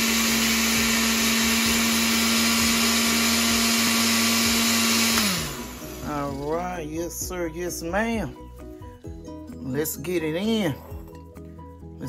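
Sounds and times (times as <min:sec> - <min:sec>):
blender motor winding down: 0:00.0 - 0:06.8
blender running: 0:00.0 - 0:06.8.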